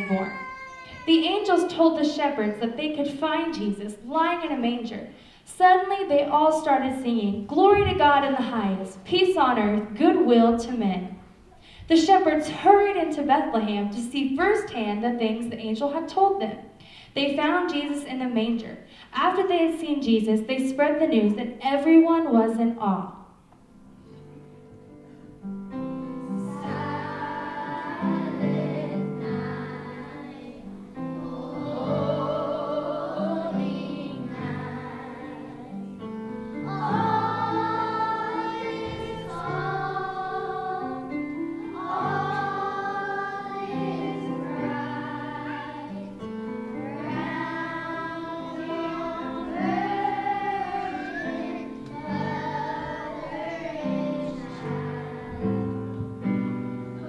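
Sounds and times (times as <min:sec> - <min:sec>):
children's choir singing: 0:00.0 - 0:02.5, 0:26.2 - 0:56.0.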